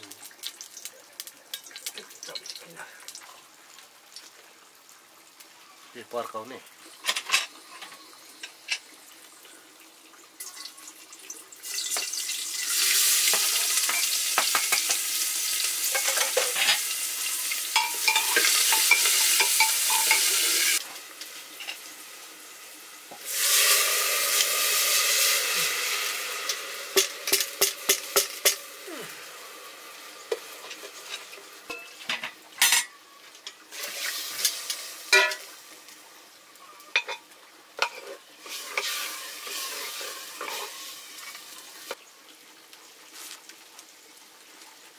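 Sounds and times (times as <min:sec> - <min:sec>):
food sizzling in hot oil: 0:00.0 - 0:44.9
metal spoon scraping a pan: 0:17.8 - 0:20.8, 0:37.8 - 0:41.4.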